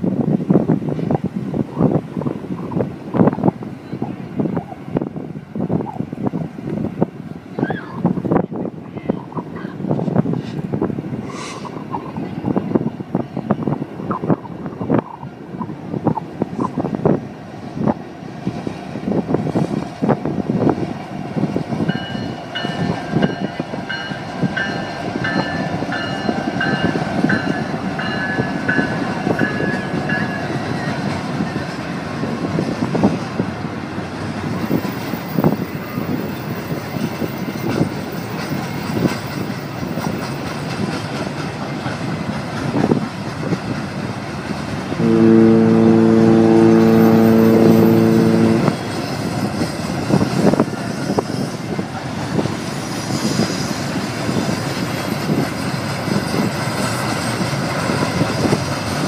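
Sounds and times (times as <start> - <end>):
train wheels rumbling on rail: 0.0 - 59.0
train horn blast: 44.9 - 49.0.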